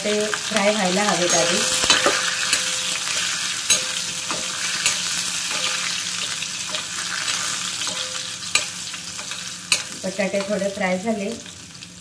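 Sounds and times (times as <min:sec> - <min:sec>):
potatoes sizzling in oil: 0:00.0 - 0:12.0
steel spoon scraping pan: 0:01.1 - 0:10.6.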